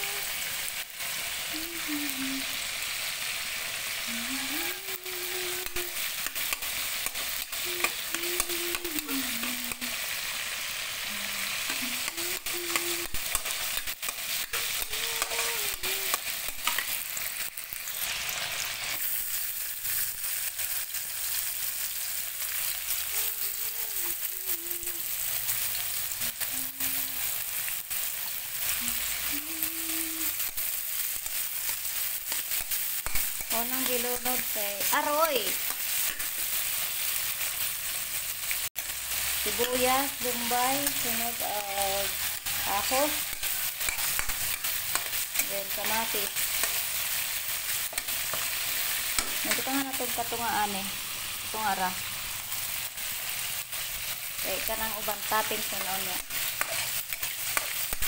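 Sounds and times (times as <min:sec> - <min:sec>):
onion sizzling in hot oil: 0:00.0 - 0:58.0
metal spatula scraping pan: 0:42.0 - 0:47.2, 0:55.6 - 0:58.0.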